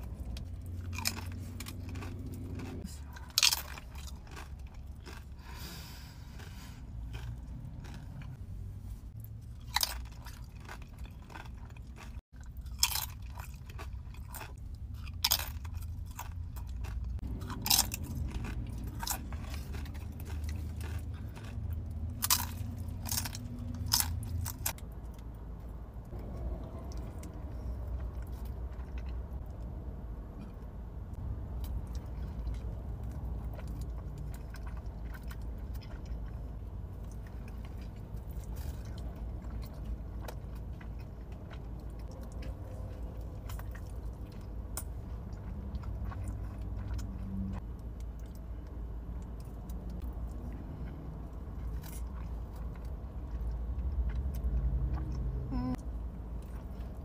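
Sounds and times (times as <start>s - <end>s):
crunchy chewing: 0.0s - 8.4s, 9.1s - 25.4s, 26.0s - 29.7s, 30.4s - 57.0s
low steady rumble: 0.0s - 57.0s.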